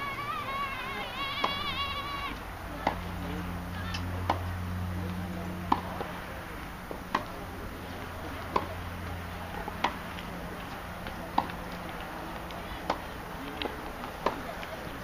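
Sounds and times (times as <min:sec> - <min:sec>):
racket strings striking ball: 0:08.5 - 0:08.8, 0:09.8 - 0:10.1, 0:11.0 - 0:12.1.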